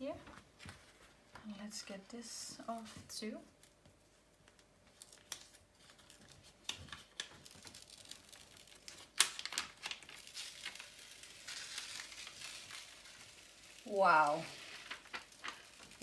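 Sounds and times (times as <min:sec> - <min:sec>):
plastic film peeling and crackling: 0:02.5 - 0:16.0.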